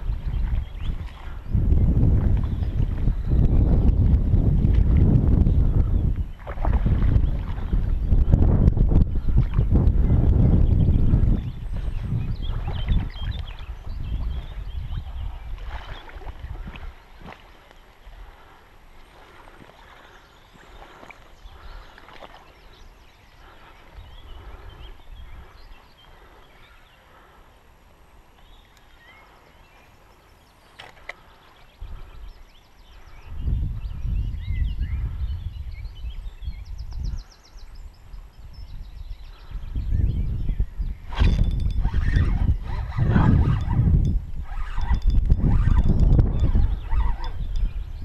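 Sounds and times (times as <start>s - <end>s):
small birds chirping: 0.0s - 4.7s, 5.4s - 48.0s
wind buffeting microphone: 0.0s - 26.8s, 31.1s - 48.0s.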